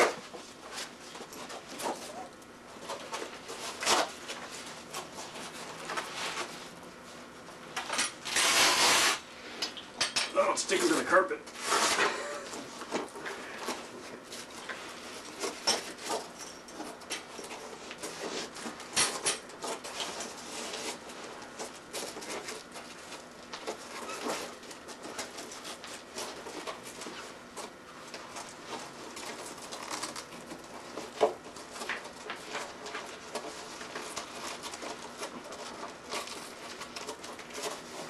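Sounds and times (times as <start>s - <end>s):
fabric cover rubbing on bicycle frame: 3.6s - 6.7s, 8.2s - 9.6s.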